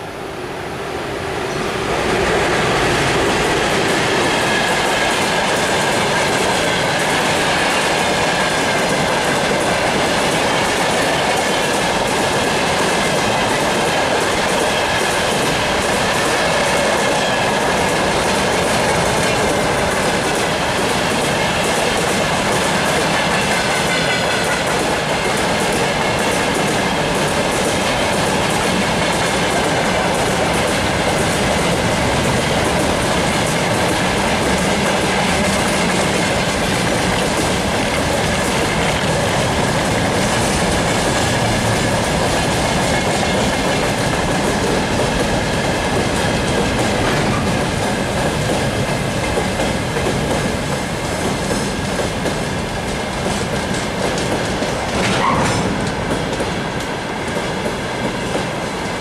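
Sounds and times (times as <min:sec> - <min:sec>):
electric locomotive passing: 0:00.0 - 0:59.0
train wheels clacking over rail joints: 0:02.3 - 0:59.0.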